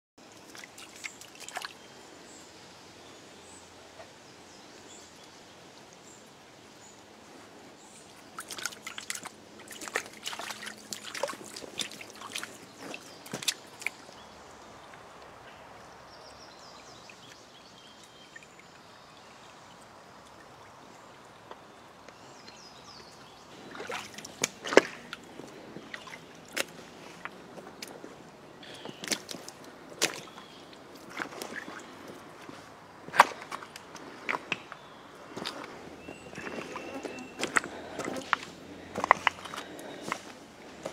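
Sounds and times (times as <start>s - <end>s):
footsteps on stream stones: 0.2s - 1.8s, 6.6s - 15.4s, 21.4s - 40.9s
stream trickling over stones: 0.2s - 40.9s.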